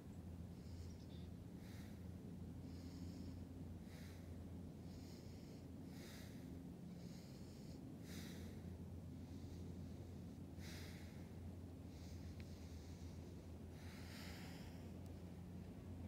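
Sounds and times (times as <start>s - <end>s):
low steady hum: 0.0s - 16.0s
rhythmic breathing: 0.5s - 16.0s.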